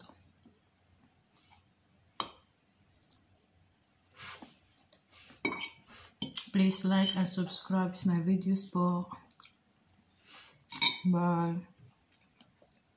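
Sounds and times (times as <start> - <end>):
chewing sounds: 2.4 - 3.6, 9.1 - 10.7.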